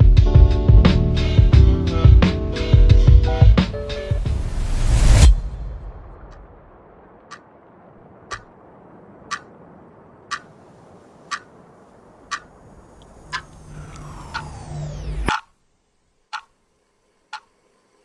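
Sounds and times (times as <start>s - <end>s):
low hum: 2.9s - 10.2s, 12.0s - 18.0s
falling sweeping tone: 13.1s - 15.3s.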